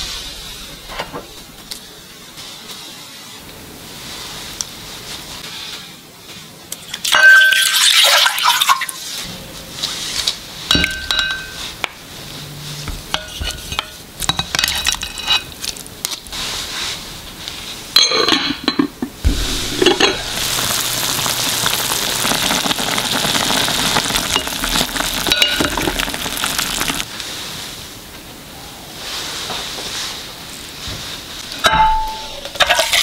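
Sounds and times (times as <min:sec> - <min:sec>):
chicken sizzling: 0:09.0 - 0:17.9, 0:19.2 - 0:27.8
utensil clinking on glass pot: 0:10.7 - 0:11.7, 0:24.3 - 0:26.6.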